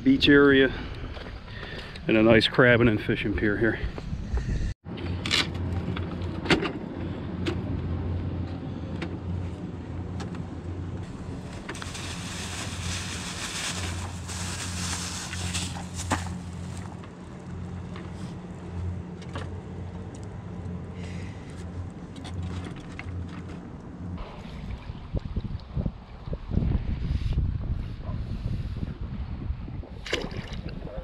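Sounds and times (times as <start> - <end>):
low motor hum: 3.8 - 29.8
plastic bag rustling: 11.1 - 17.0.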